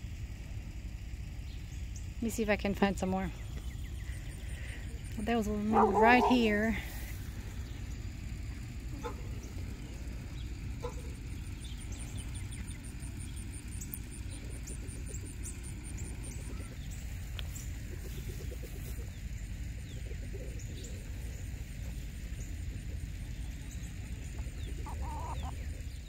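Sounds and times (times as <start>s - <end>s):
steady low rumble: 0.0s - 26.0s
faint high bird chirps: 22.3s - 26.0s.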